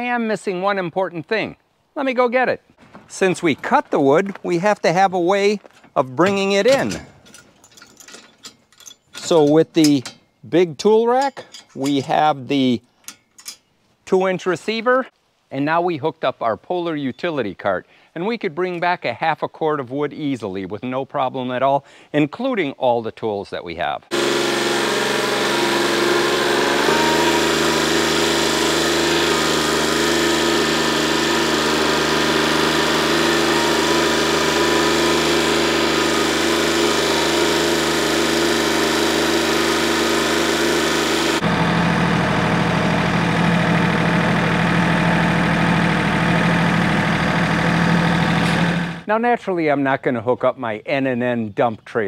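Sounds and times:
tractor diesel engine running: 0:05.3 - 0:10.2, 0:24.1 - 0:49.1.

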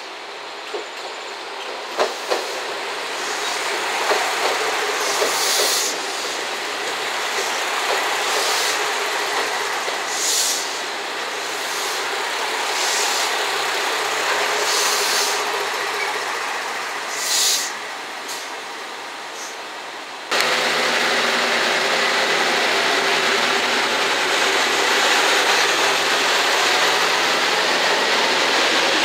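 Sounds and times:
diesel train rolling on rails: 0:00.0 - 0:29.0
rail joint clacks: 0:00.6 - 0:18.5
high hissing squeals: 0:07.3 - 0:13.5, 0:14.4 - 0:17.9.

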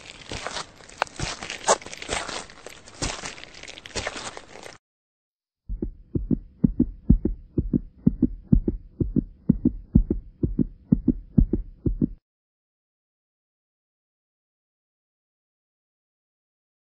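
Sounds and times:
low double thumps: 0:05.7 - 0:12.2.

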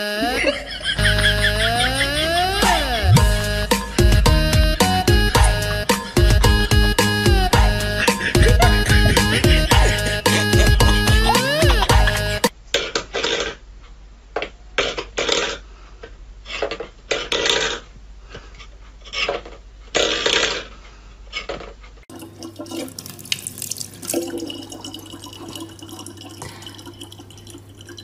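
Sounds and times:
tap water running into bottle: 0:22.1 - 0:28.0.

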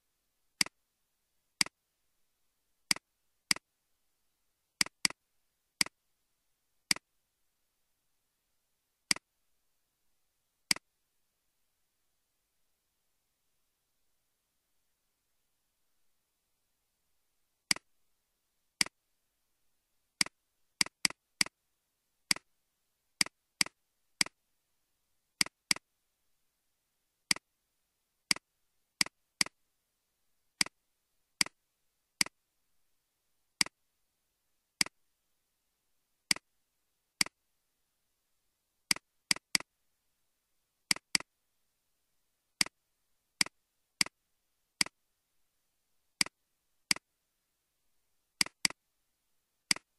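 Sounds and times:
computer mouse clicks: 0:02.9 - 0:03.6, 0:04.8 - 0:05.2, 0:06.9 - 0:07.1, 0:09.1 - 0:09.3, 0:10.7 - 0:10.9, 0:17.7 - 0:17.9, 0:20.2 - 0:21.6, 0:22.3 - 0:22.5, 0:23.2 - 0:24.4, 0:25.4 - 0:25.9, 0:28.3 - 0:29.6, 0:33.6 - 0:33.8, 0:36.3 - 0:36.5, 0:38.9 - 0:39.7, 0:40.9 - 0:41.3, 0:43.4 - 0:44.2, 0:44.8 - 0:45.0, 0:46.2 - 0:47.1, 0:48.4 - 0:48.8, 0:49.7 - 0:49.9.

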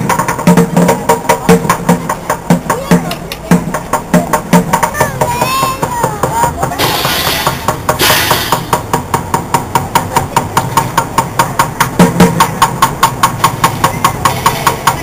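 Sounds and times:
drumming on plastic buckets and pans: 0:00.0 - 0:15.0.

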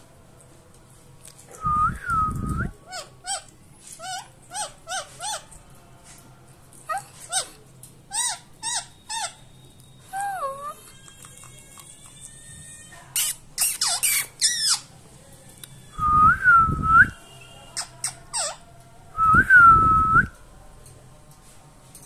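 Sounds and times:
parakeet calling: 0:08.1 - 0:09.5.

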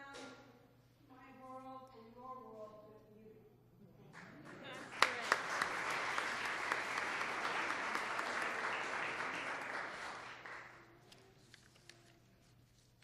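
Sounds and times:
audience applauding: 0:04.2 - 0:10.9.

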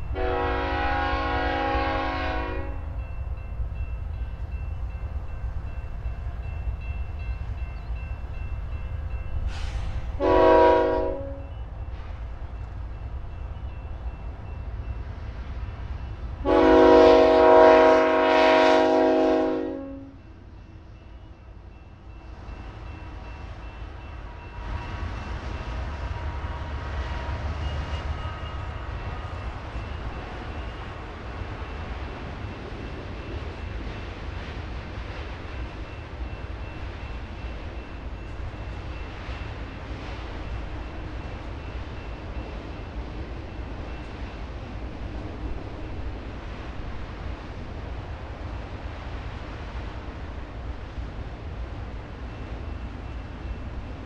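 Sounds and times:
freight train rumbling past: 0:00.0 - 0:54.0
locomotive air horn blast: 0:00.2 - 0:02.8, 0:09.5 - 0:11.5, 0:16.4 - 0:20.2.

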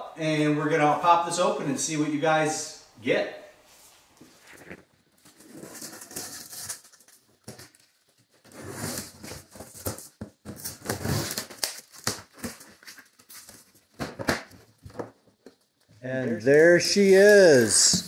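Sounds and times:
scraping against cardboard: 0:04.2 - 0:07.7
scissors cutting packing tape: 0:10.6 - 0:12.6.

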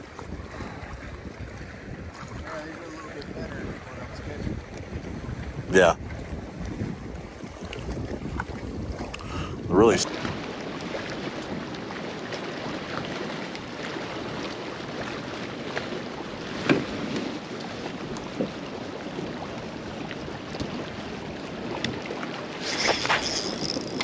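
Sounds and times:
small waves lapping against hull: 0:00.0 - 0:24.0
wind on microphone: 0:00.0 - 0:24.0
fishing reel clicking: 0:22.6 - 0:24.0.

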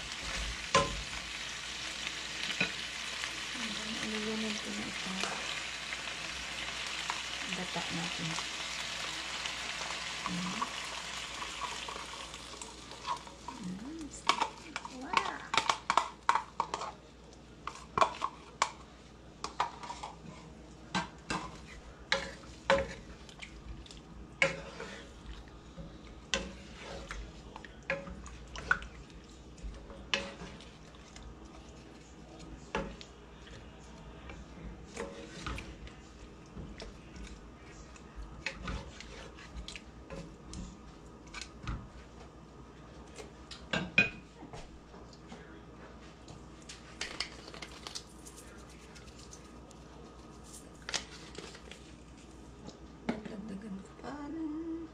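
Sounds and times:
utensils scraping a pan: 0:24.4 - 0:25.2.

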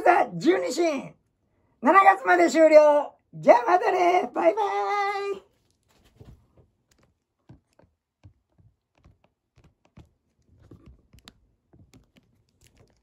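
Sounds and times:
faint handling clicks and knocks: 0:05.6 - 0:13.0.

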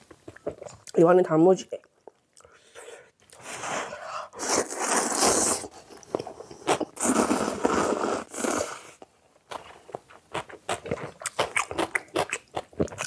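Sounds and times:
slurping noodles: 0:03.4 - 0:05.9, 0:06.5 - 0:09.0
chewing: 0:09.5 - 0:13.0.

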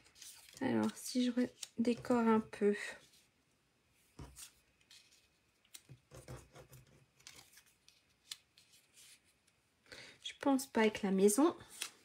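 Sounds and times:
paper rustling: 0:00.0 - 0:02.4, 0:04.1 - 0:09.5.

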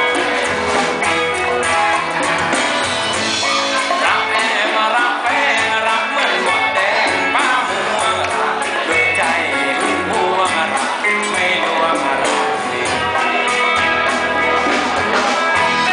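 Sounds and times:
drums: 0:00.0 - 0:15.9
electric guitar: 0:00.0 - 0:15.9
person singing: 0:03.2 - 0:15.9.

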